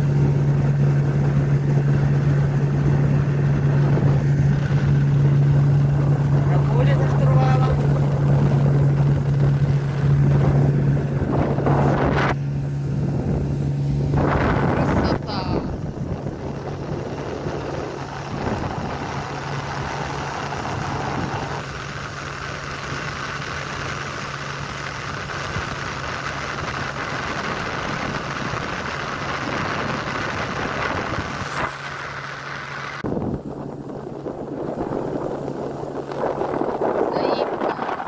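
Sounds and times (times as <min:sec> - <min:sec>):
outboard motor running: 0:00.0 - 0:38.0
water hissing: 0:17.0 - 0:33.0.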